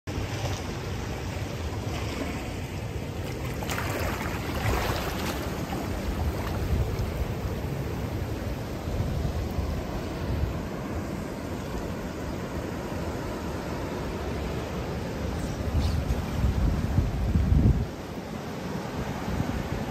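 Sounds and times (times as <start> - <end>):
ocean surf washing on sand: 0.1 - 19.9
wind buffeting microphone: 3.9 - 12.8, 15.4 - 18.0.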